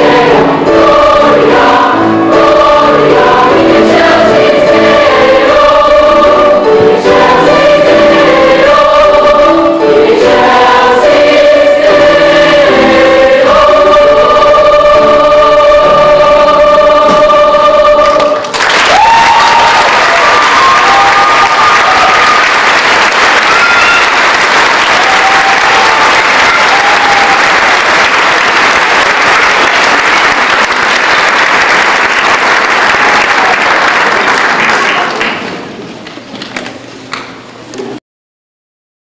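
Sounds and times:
audience applauding: 18.0s - 35.7s.

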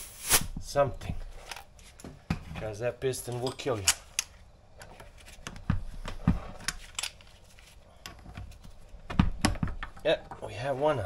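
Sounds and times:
metal parts clicking and knocking: 8.0s - 10.4s.

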